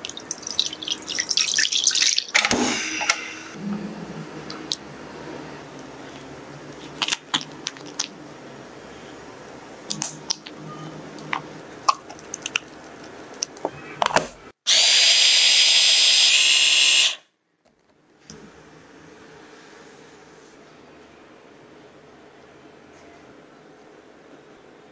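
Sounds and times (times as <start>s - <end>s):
electric blender whining: 14.7s - 17.2s.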